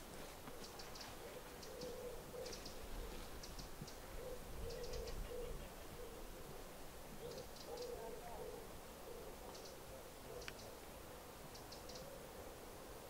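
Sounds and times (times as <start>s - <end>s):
small birds chirping: 0.4s - 6.3s, 7.1s - 12.2s
pigeon cooing: 0.4s - 6.4s, 7.1s - 10.8s.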